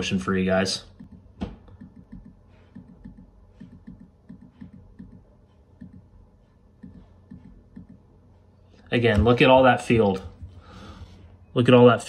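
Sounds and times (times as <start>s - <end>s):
computer controls clicking: 0.9s - 6.1s.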